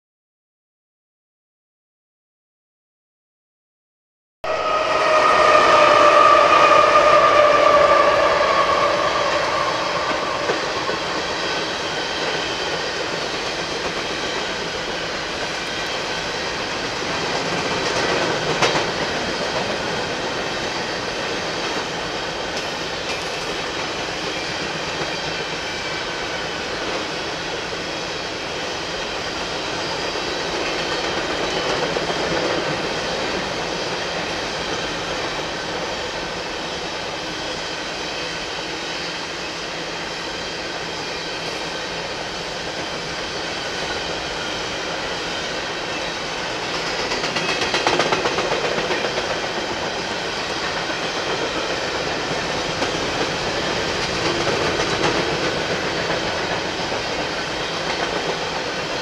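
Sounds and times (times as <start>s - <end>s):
train horn drone: 4.4s - 12.6s
train wheels rolling on rails: 4.5s - 59.0s.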